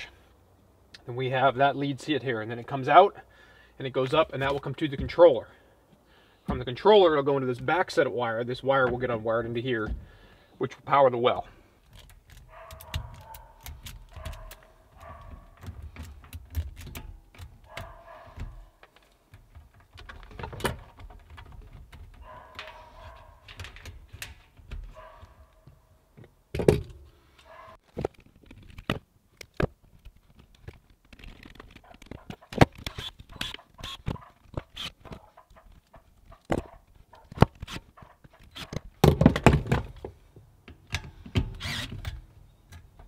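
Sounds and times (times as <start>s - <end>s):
clicks and taps on metal terminals: 11.9s - 22.8s.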